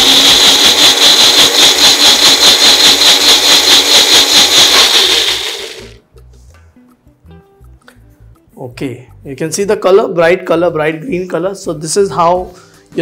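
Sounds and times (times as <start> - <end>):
mixer grinder whining: 0.0 - 6.0.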